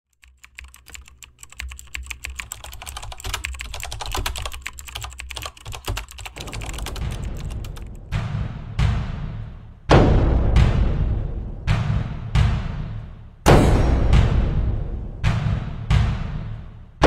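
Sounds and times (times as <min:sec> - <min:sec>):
rapid irregular clicking: 0:00.1 - 0:08.2.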